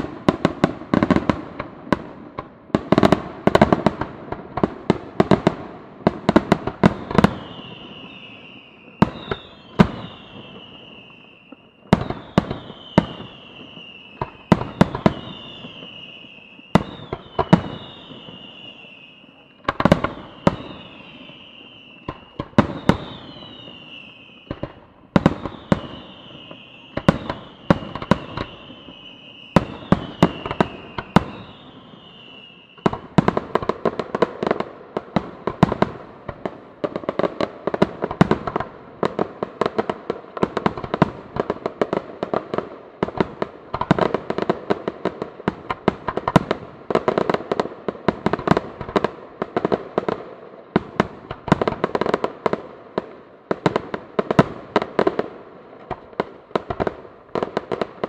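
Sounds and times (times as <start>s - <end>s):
firework bangs: 0.0s - 58.0s
high firework whistle: 6.8s - 33.8s.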